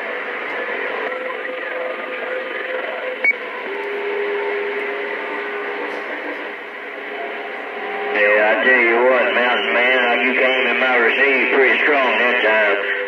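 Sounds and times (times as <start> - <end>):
radio speaker hiss: 8.1 - 13.0.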